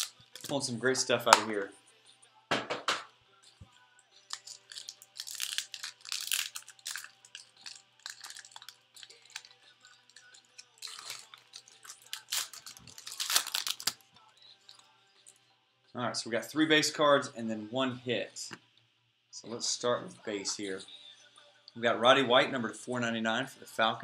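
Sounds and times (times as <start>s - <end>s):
wrapper tearing and crinkling: 0.0s - 0.6s, 4.3s - 9.5s, 10.1s - 14.0s.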